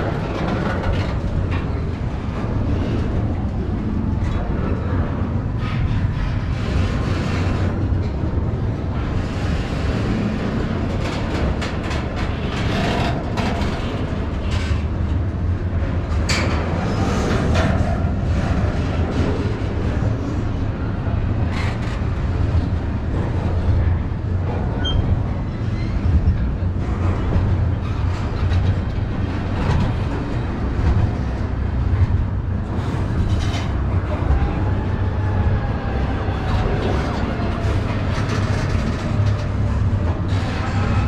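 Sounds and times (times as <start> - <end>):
wheels clacking over rail joints: 0.0 - 20.0
freight train rumble: 0.0 - 41.0.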